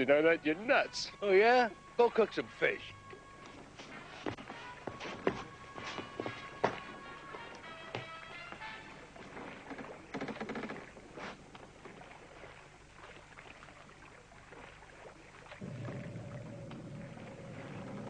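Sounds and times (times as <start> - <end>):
low electronic hum: 0.0 - 7.3, 11.0 - 18.0
water washing around hull: 8.6 - 18.0.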